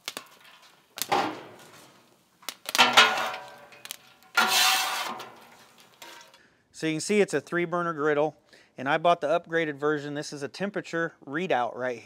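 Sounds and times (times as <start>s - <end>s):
metal spatula scraping griddle: 2.8s - 6.4s.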